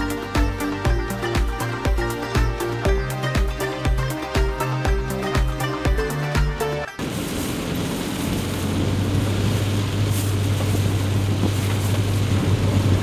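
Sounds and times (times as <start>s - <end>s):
background music: 0.0s - 7.0s
vehicle engine drone: 0.0s - 13.0s
road and wind noise: 4.2s - 13.0s.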